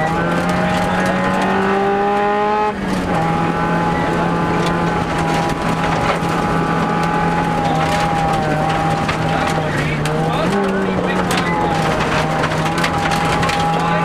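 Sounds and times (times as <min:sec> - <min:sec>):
car engine running hard: 0:00.0 - 0:14.0
gravel road noise: 0:00.0 - 0:14.0.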